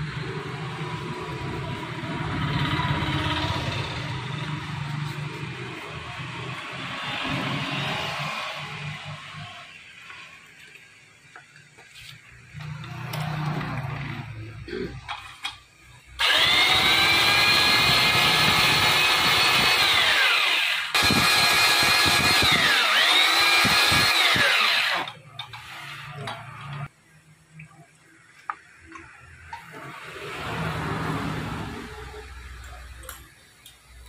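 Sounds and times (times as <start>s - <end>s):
drill press whining: 16.2s - 26.8s.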